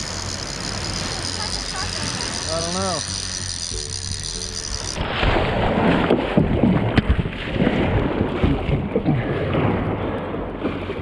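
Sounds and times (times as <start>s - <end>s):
paddle splashing water: 4.8s - 11.0s.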